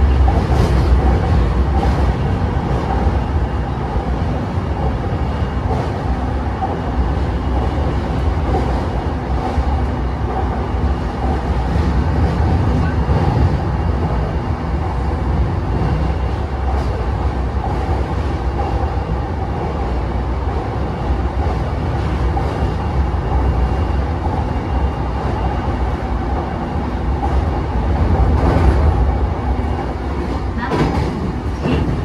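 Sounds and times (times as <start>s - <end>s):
train wheels clacking: 0.0s - 3.3s, 29.6s - 32.0s
train wheels rumbling on rail: 0.0s - 32.0s.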